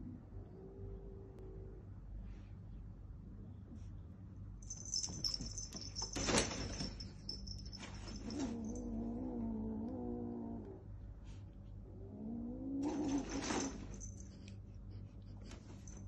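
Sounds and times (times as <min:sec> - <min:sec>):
high jingling with clicks: 0:04.6 - 0:08.9.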